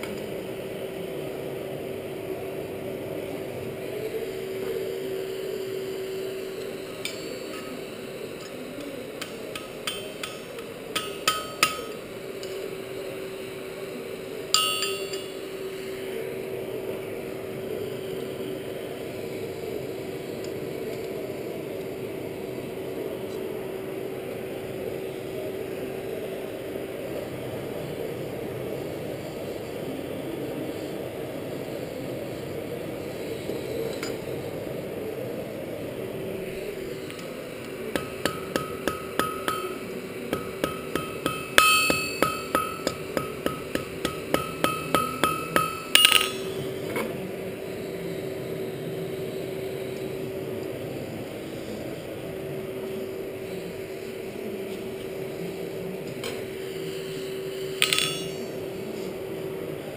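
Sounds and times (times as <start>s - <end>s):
forge blower rushing and humming: 0.0s - 59.9s
hammer blows on anvil: 9.5s - 12.0s, 14.6s - 15.4s, 37.9s - 46.7s, 57.8s - 58.5s.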